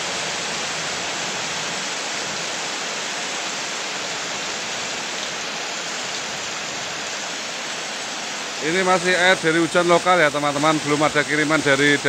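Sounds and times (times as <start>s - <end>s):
heavy rain on standing water: 0.0s - 12.0s.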